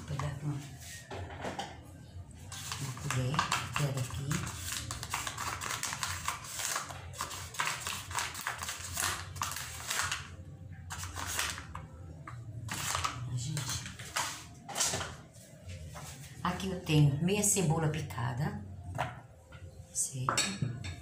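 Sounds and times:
spoon scraping plastic cup: 2.5s - 10.3s, 10.9s - 11.8s, 12.7s - 15.0s.

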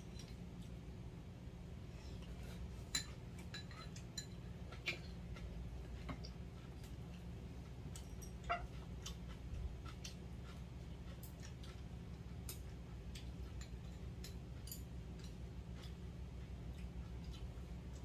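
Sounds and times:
low steady hum: 0.0s - 18.0s
utensils clinking against bowls: 2.8s - 5.0s.

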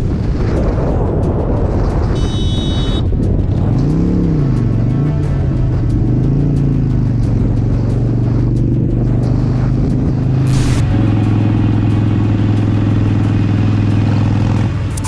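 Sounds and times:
motorcycle engine running: 0.0s - 15.0s
whoosh: 9.3s - 13.4s.

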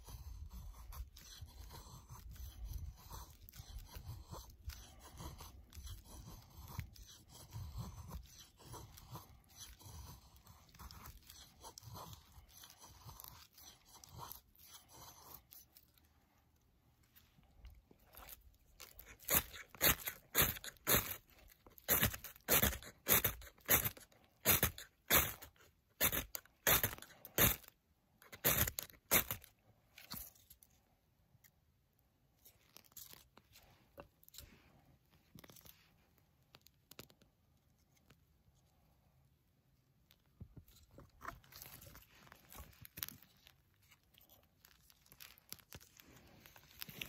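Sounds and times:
knife scraping ferrocerium rod: 0.0s - 15.9s, 18.1s - 30.5s
faint scattered crackles: 32.3s - 38.6s.

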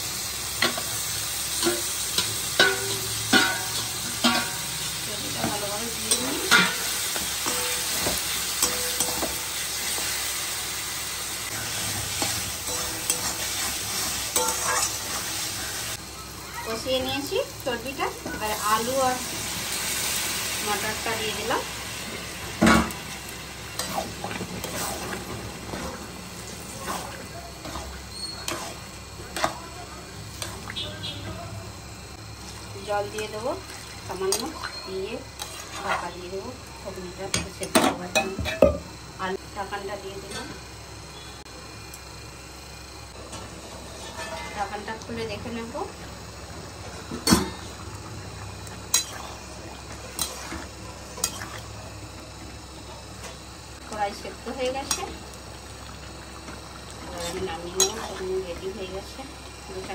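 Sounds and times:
spatula scraping and knocking pan: 23.8s - 29.7s.

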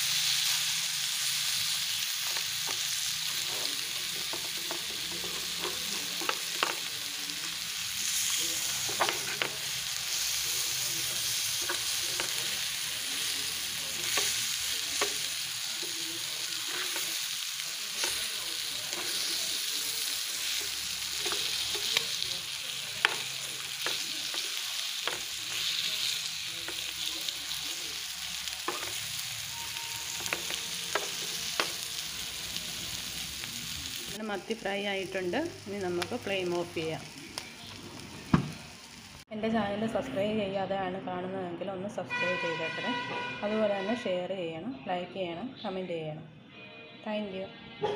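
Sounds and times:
fish sizzling in a frying pan: 0.0s - 39.3s
spatula scraping a pan: 2.6s - 6.6s, 17.9s - 22.2s.

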